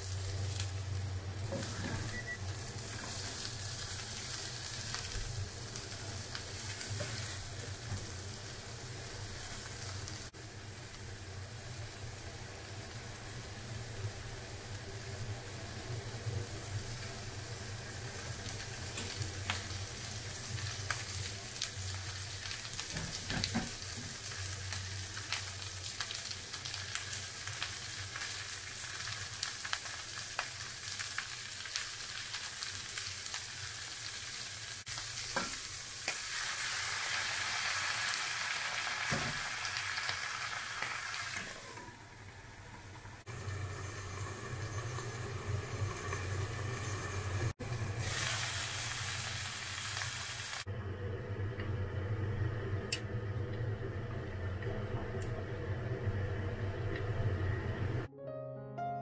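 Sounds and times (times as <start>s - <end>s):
vegetables sizzling in a frying pan: 0.0s - 50.7s
water poured into hot pan: 48.0s - 50.7s.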